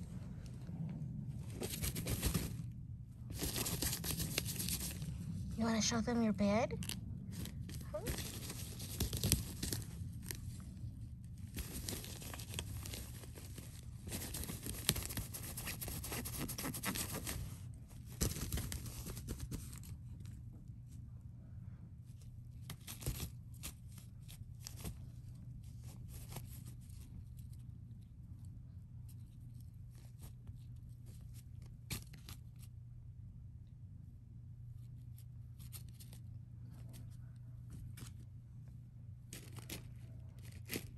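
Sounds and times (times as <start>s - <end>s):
fabric tunnel rustling and crinkling: 0.0s - 20.3s
steady low hum: 0.0s - 40.9s.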